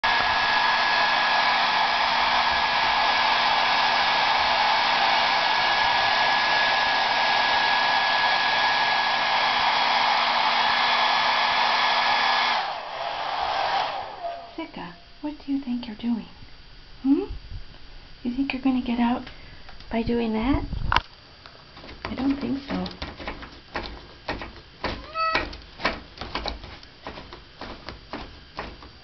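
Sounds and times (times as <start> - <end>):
hair dryer running: 0.0 - 14.6.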